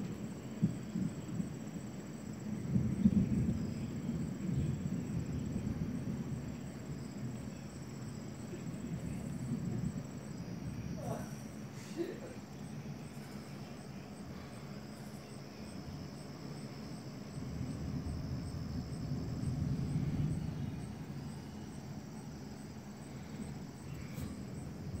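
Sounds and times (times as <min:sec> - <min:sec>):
crickets chirring: 0:00.0 - 0:25.0
low rumble: 0:15.7 - 0:25.0.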